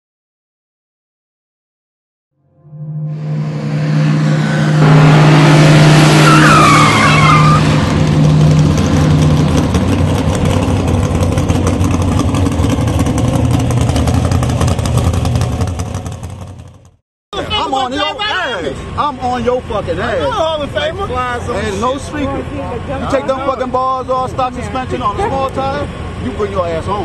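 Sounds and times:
car engine with rasping exhaust: 3.0s - 17.9s, 18.5s - 27.0s
tyres squealing: 5.9s - 8.0s.

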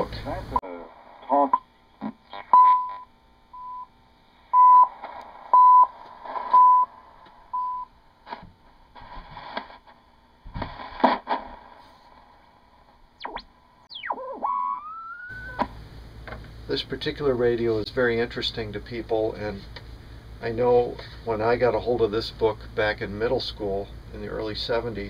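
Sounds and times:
radio hiss: 0.0s - 3.1s, 4.4s - 7.6s, 8.2s - 25.0s
static crackles: 0.0s - 3.2s, 4.3s - 21.8s
radio time-signal beeps: 2.4s - 3.9s, 4.6s - 6.9s, 7.5s - 7.9s, 13.2s - 15.7s
loud static crash: 5.0s - 7.5s, 8.2s - 17.0s
radio whistles sliding in pitch: 13.2s - 15.7s.

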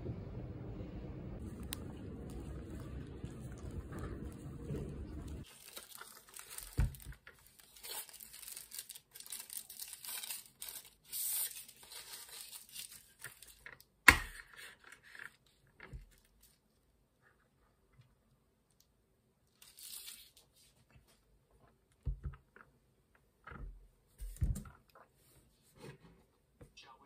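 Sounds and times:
plastic wrapper crinkling and tearing: 5.4s - 14.0s, 19.5s - 20.6s.

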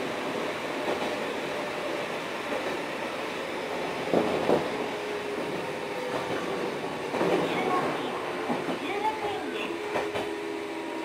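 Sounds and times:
train running noise with humming: 0.0s - 11.0s.

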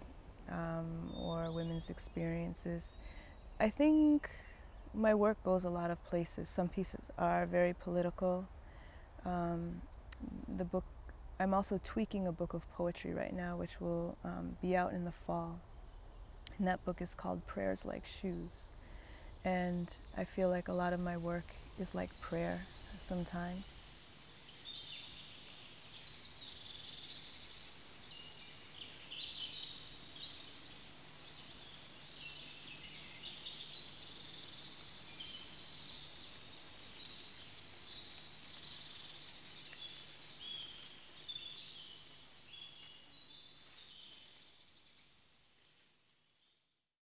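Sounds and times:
faint background hiss: 0.0s - 46.9s
birds chirping and trilling: 1.0s - 3.7s, 19.0s - 46.6s.

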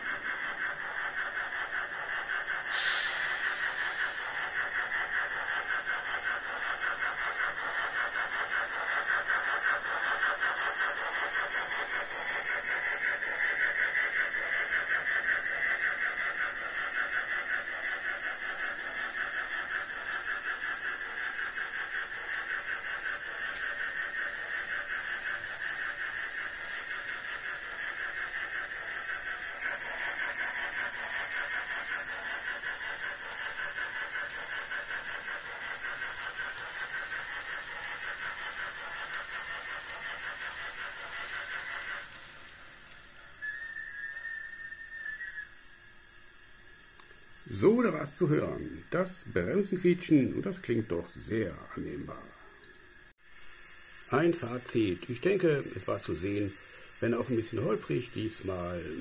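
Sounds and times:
model train wheels rattling: 0.0s - 43.3s
model steam locomotive sound: 0.0s - 59.0s.

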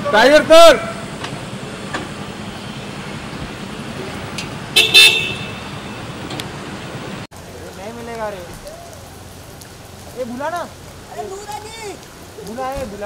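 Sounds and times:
street traffic noise: 0.0s - 13.0s
vehicle horn honking: 4.7s - 6.2s.

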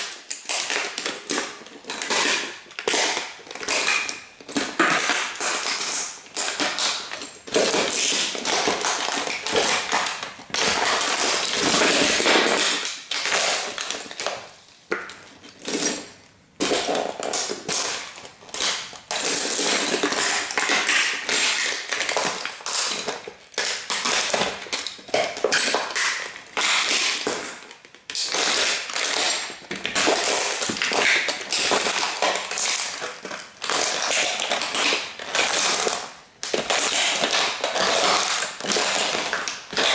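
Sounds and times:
toy car parts crunching: 15.5s - 39.9s.

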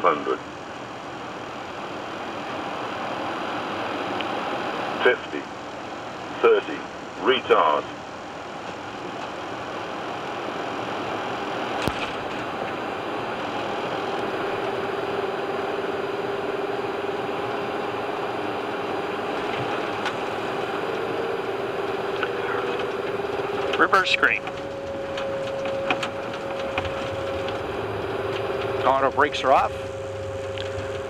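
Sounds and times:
steady hum: 0.0s - 31.0s
rushing rollout noise: 9.0s - 31.0s.

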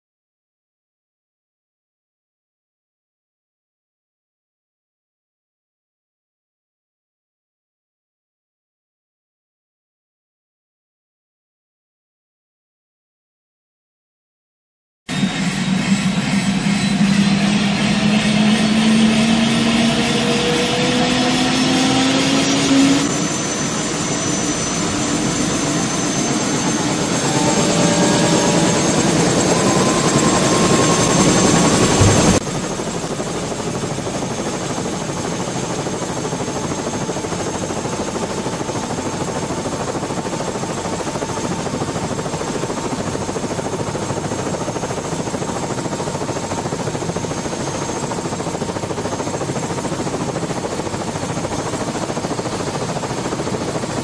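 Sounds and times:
helicopter rotor and engine noise: 15.1s - 54.0s.

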